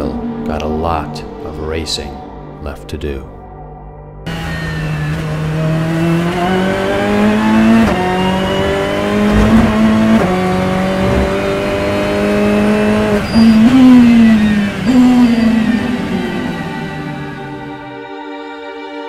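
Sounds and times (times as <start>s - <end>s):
race car engine revving: 4.3s - 18.0s.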